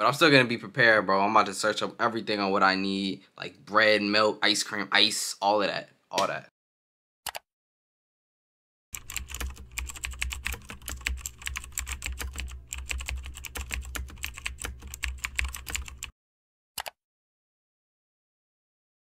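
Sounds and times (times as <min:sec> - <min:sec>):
fast keyboard typing: 0:09.0 - 0:16.1.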